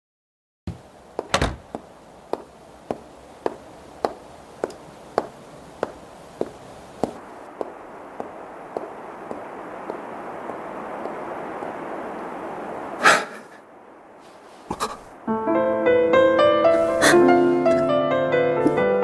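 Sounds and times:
footsteps on hard floor: 2.4s - 10.0s.

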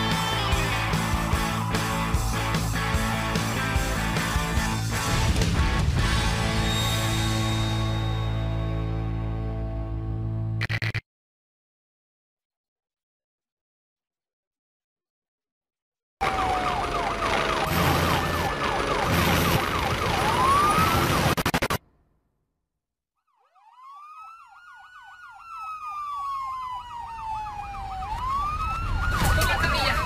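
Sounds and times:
ambulance siren slow wail: 0.0s - 4.4s, 16.2s - 21.6s, 23.2s - 30.0s
ambulance siren fast yelp: 0.1s - 3.2s, 16.2s - 21.8s, 23.2s - 30.0s.

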